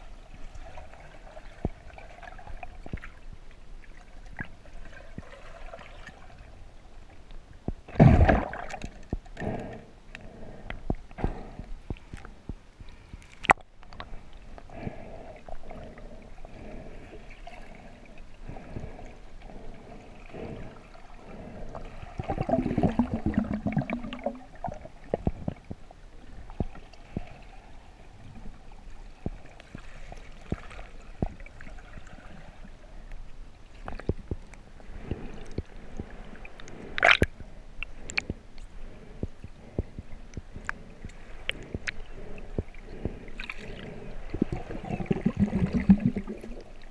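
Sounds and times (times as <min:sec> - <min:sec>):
underwater water wash: 0:00.0 - 0:46.9
small underwater clicks and knocks: 0:02.5 - 0:03.6, 0:07.1 - 0:14.8, 0:21.7 - 0:27.4, 0:28.2 - 0:32.2, 0:33.1 - 0:46.9.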